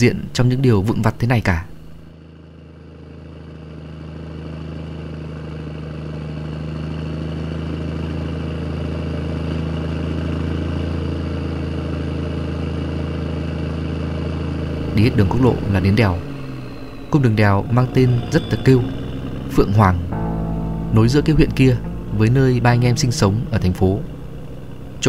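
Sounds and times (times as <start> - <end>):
vehicle engine running: 1.7 - 25.0.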